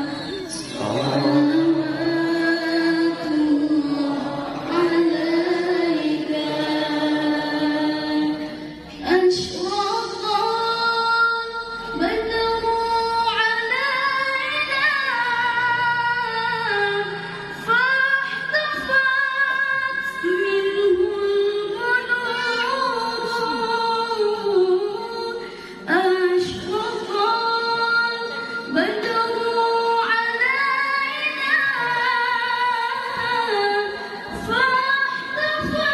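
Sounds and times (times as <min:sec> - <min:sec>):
woman chanting a recitation: 0:00.0 - 0:35.9.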